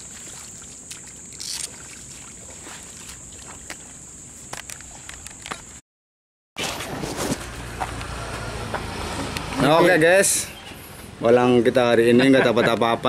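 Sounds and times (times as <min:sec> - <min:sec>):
squelching in mud and water: 0:00.0 - 0:05.7.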